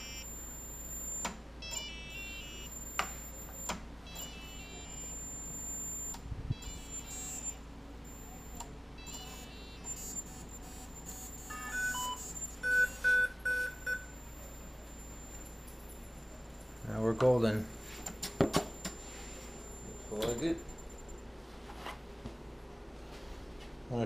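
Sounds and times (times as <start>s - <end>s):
electronic startup beeps: 0.0s - 15.8s.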